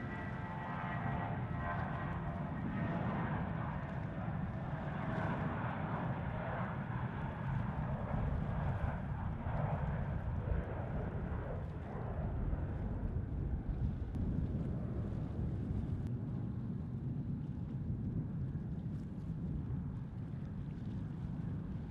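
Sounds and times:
jet airliner taking off: 0.0s - 15.8s.

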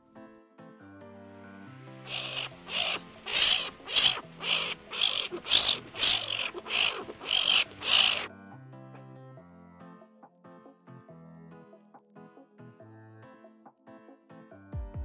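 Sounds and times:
soft background music: 0.0s - 15.0s
skunk huffing: 2.1s - 8.3s.

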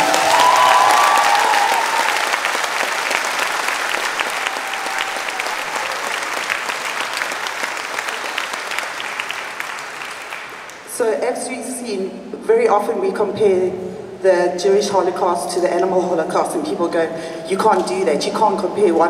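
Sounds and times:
audience applause: 0.0s - 10.9s.

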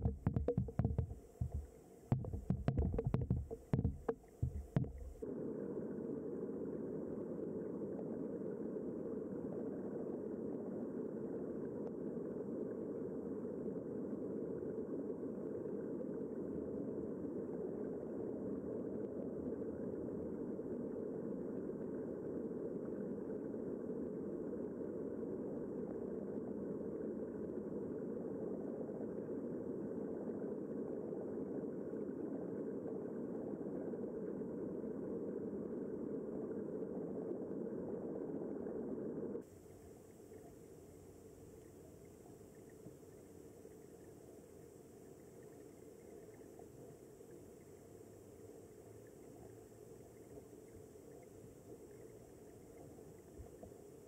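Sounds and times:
knocks: 0.0s - 5.2s
water rushing underwater: 0.0s - 54.0s.

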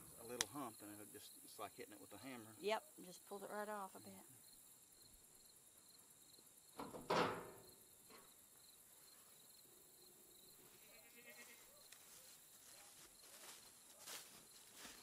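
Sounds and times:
goat bleating: 10.8s - 11.7s.

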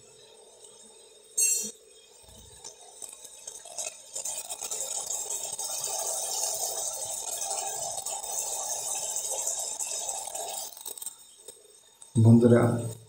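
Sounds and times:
metal clink against pan: 1.4s - 1.8s
metal spatula scraping frying vegetables: 4.1s - 12.1s.

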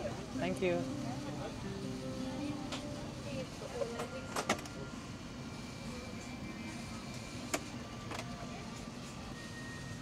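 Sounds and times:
airliner cabin hum: 0.0s - 9.3s.

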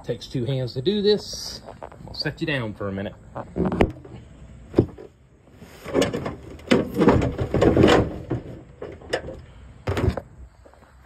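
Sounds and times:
car hood knocks and scraping: 5.8s - 10.3s.

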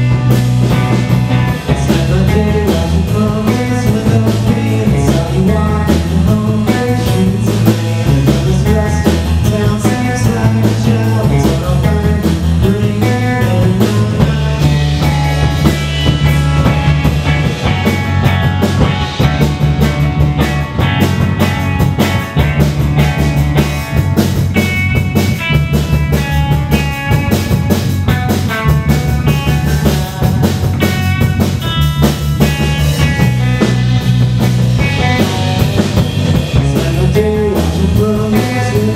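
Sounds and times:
electric guitar riff: 0.0s - 3.8s, 11.6s - 38.7s
driving drum kit: 0.0s - 38.9s.

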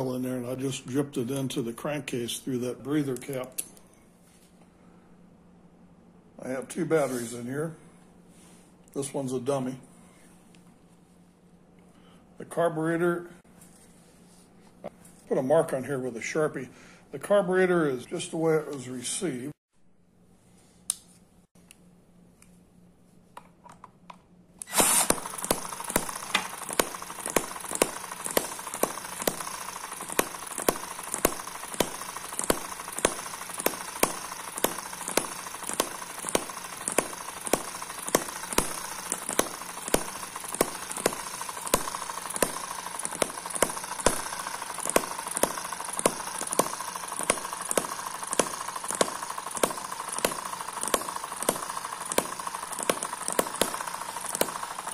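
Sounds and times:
small engine firing pops: 24.6s - 54.9s.

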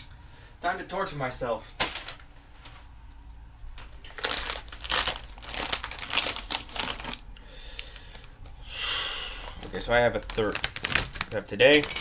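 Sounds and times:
plastic snack packet crinkling: 3.8s - 8.4s, 9.5s - 11.7s.

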